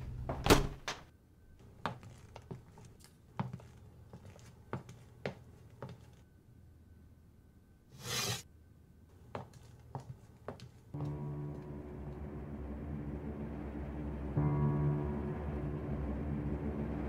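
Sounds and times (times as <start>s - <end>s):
light footsteps on floor: 1.8s - 6.2s, 9.3s - 11.2s.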